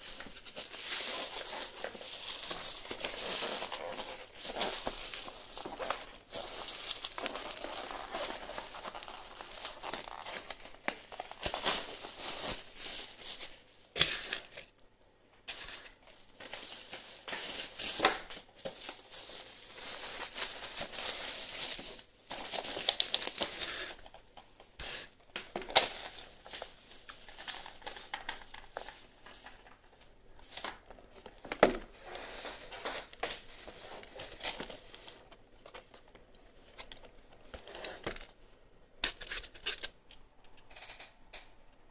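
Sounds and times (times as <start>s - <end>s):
bubble wrap crinkling: 0.0s - 14.7s, 15.8s - 38.0s
sharp bubble wrap clicks: 0.0s - 14.7s, 16.3s - 24.5s.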